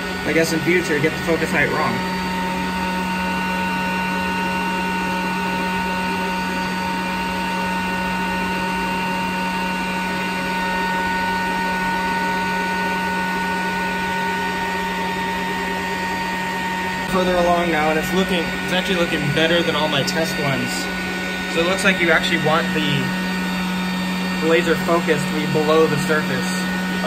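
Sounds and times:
laser cutter humming: 0:00.0 - 0:27.0.

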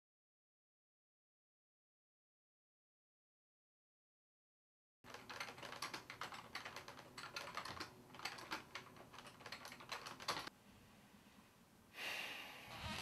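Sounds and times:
fast typing on keyboard: 0:05.1 - 0:10.5.

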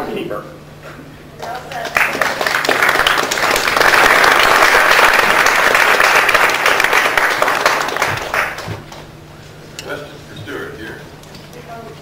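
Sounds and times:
audience applauding: 0:01.4 - 0:09.1.

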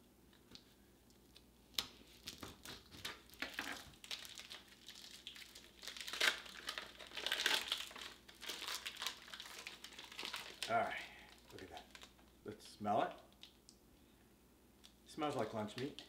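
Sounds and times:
plastic packaging crinkling: 0:01.2 - 0:12.4.

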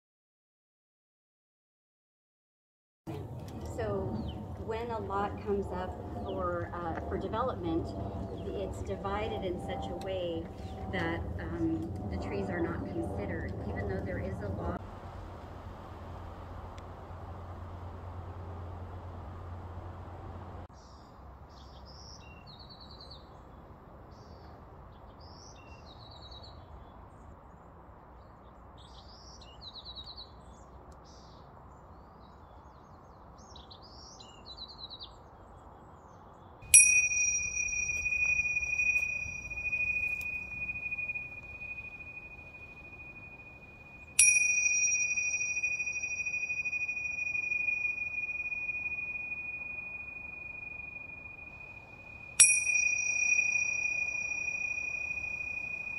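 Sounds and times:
small birds chirping: 0:03.5 - 0:12.4
tingsha cymbals ringing: 0:03.6 - 0:14.8, 0:36.7 - 0:55.9.

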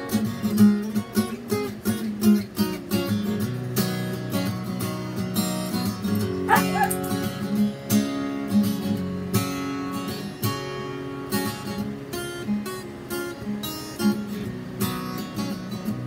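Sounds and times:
acoustic guitar strumming: 0:00.0 - 0:16.0
dog whining: 0:06.4 - 0:07.3.

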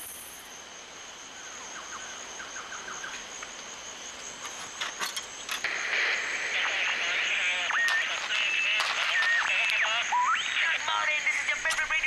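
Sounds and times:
insect drone: 0:00.0 - 0:12.0
sharp clicks: 0:07.7 - 0:09.8.

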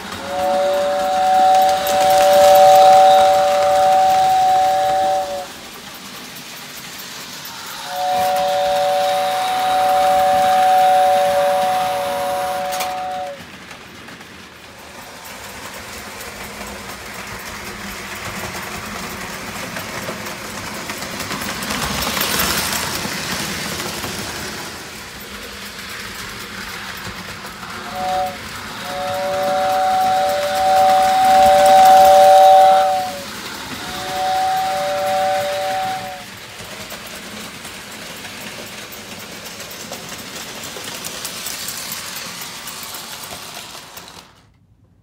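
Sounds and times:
toy train running on rails: 0:00.0 - 0:44.6
toy train whistle: 0:00.1 - 0:05.6, 0:07.5 - 0:13.4, 0:27.7 - 0:36.4.

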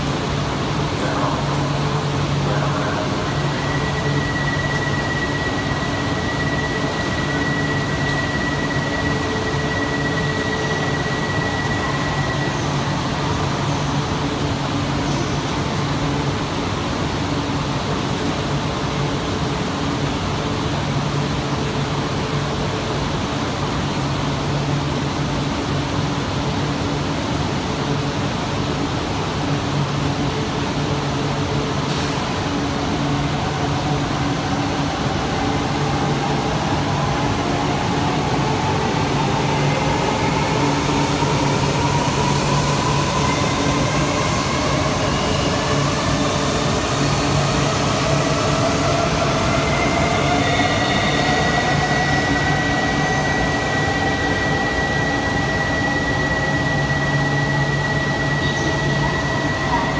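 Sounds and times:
steady high tone: 0:02.3 - 0:13.2, 0:39.0 - 0:59.9.

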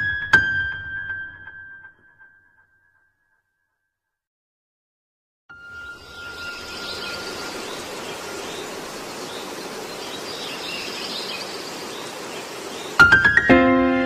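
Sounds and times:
birds chirping: 0:05.6 - 0:13.3
steady background hiss: 0:06.0 - 0:13.1.

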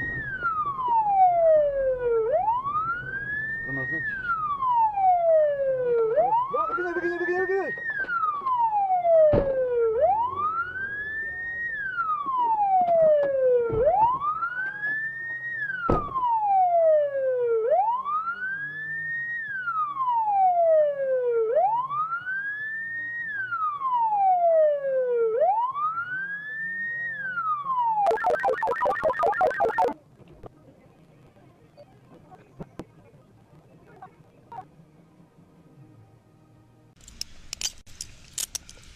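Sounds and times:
police siren wailing: 0:00.0 - 0:30.0.

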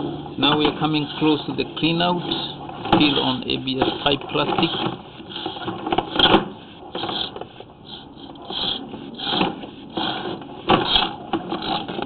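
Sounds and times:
cable knocking and scraping in pipe: 0:01.9 - 0:07.5.

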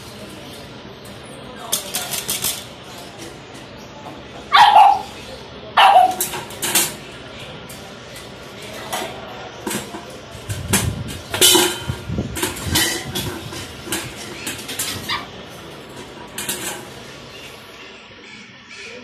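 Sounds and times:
metal cage and bowl clattering: 0:05.8 - 0:17.6.

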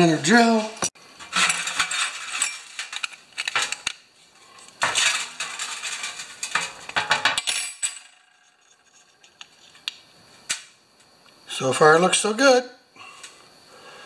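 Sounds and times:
metal tools clattering in steel pan: 0:01.2 - 0:03.8, 0:04.8 - 0:09.0.

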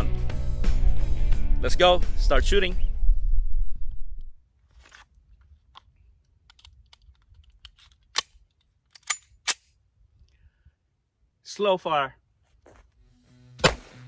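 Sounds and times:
pistol rattling: 0:04.9 - 0:09.8
small clicks: 0:05.7 - 0:09.3.

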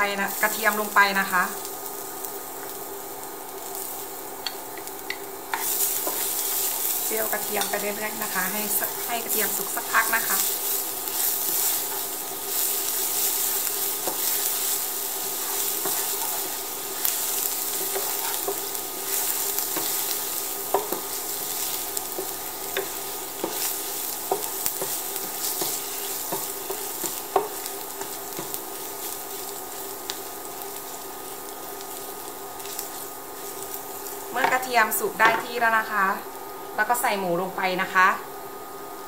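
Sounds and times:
garlic sizzling in oil: 0:00.0 - 0:39.0
wooden spatula scraping a pan: 0:09.5 - 0:20.0.

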